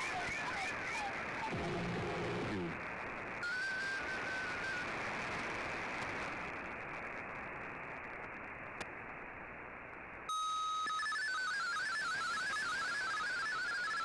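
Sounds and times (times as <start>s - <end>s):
steady radio tone: 0.0s - 2.8s
radio static hiss: 0.0s - 10.3s
warbling digital data tones: 10.3s - 14.0s.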